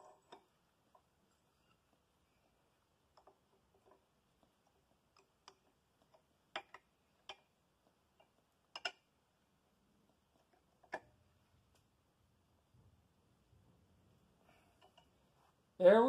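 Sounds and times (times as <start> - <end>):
faint clicks and light knocks: 0.0 - 9.1, 14.4 - 15.6.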